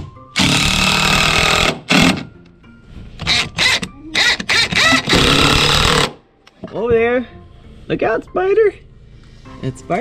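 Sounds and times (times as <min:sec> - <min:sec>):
impact driver driving a screw: 0:00.4 - 0:02.3, 0:03.2 - 0:06.2.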